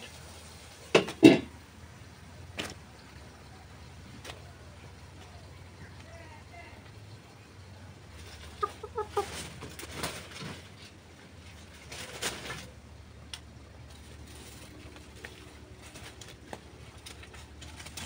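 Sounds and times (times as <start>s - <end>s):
dry leaves rustling: 2.0s - 18.0s
chicken clucking: 2.9s - 10.6s.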